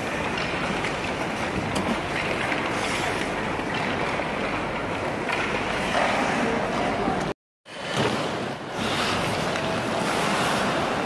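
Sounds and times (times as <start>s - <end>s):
skate blades scraping ice: 0.0s - 4.6s, 7.8s - 11.0s
hubbub of indoor hall: 0.0s - 11.0s.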